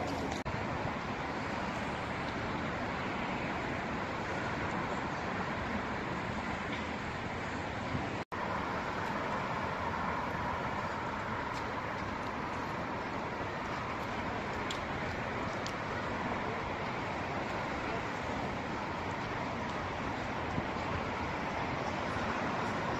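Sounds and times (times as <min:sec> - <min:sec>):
city traffic rumble: 0:00.0 - 0:22.9.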